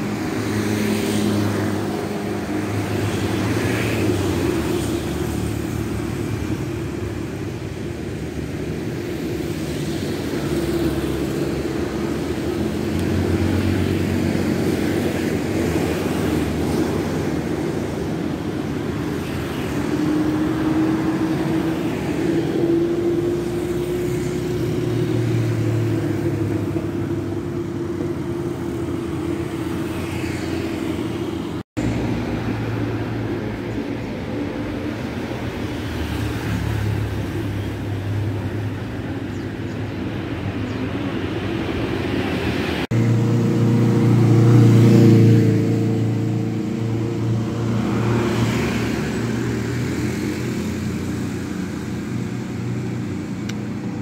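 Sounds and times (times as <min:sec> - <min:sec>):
cars and motorbikes passing: 0:00.0 - 0:54.0
vehicle drone rising in pitch: 0:41.2 - 0:53.5.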